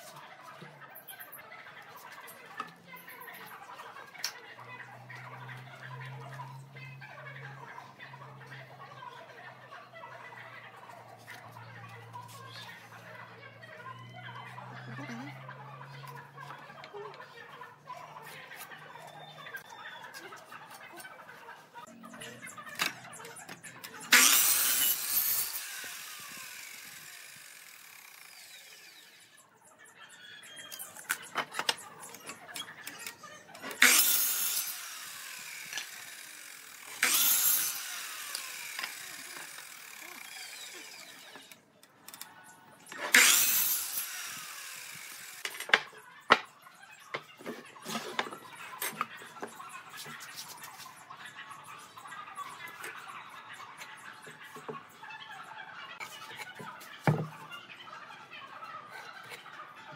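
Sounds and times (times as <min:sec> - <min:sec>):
woodworking tool bursts: 0:24.1 - 0:29.3, 0:33.7 - 0:41.6, 0:43.0 - 0:45.8.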